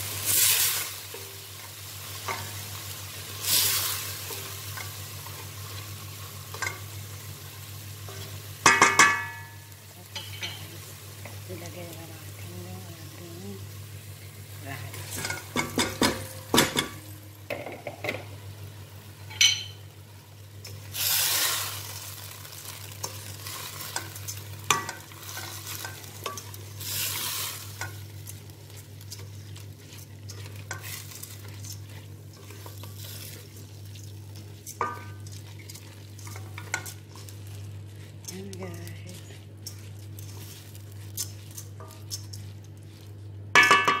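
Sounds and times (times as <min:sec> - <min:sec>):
light sizzle: 0:00.0 - 0:44.0
steady low hum: 0:22.8 - 0:44.0.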